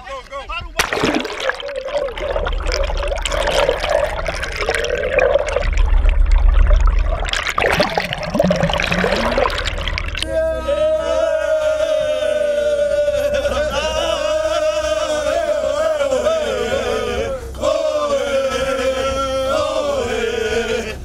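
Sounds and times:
men chanting together: 10.2 - 21.0.

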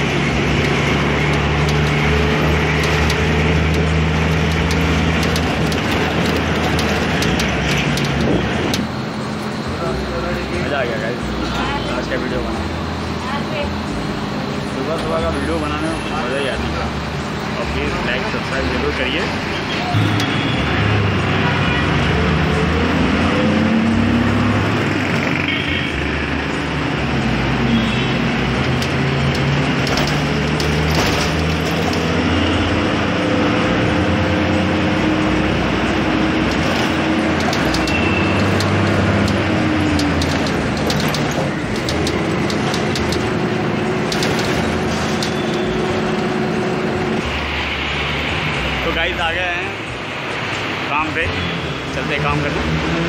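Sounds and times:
bus engine humming: 0.0 - 53.0
surrounding traffic noise: 0.0 - 53.0
rattles and clicks: 0.5 - 9.6, 28.6 - 32.2, 36.3 - 46.3.

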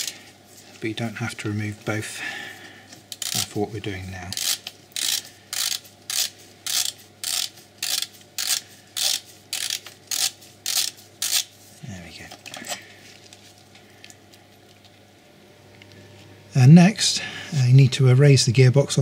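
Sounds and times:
ratchet wrench clicking: 3.1 - 3.6, 4.3 - 11.5.

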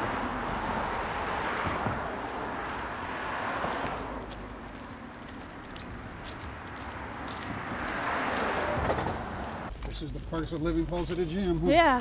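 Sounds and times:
car driving past: 0.0 - 4.7, 6.1 - 9.7.

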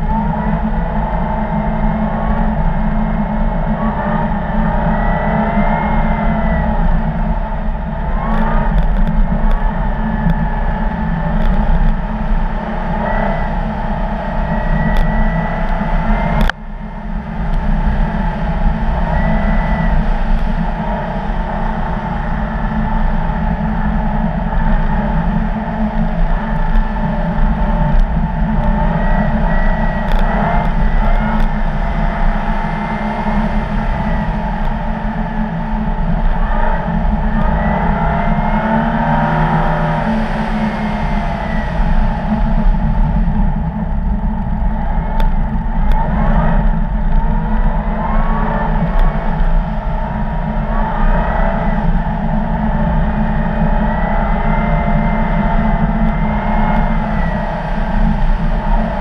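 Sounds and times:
car engine running under throttle: 0.0 - 59.0
faint high whine: 0.0 - 59.0
wind rumble: 0.0 - 59.0.

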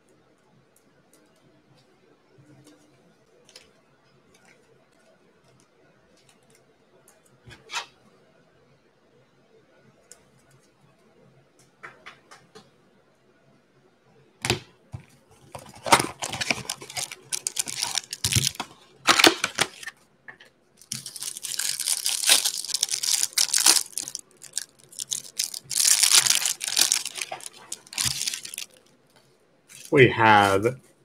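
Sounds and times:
cardboard box being opened: 15.6 - 19.9
plastic wrapping tearing and crinkling: 15.6 - 19.9, 20.8 - 28.8.

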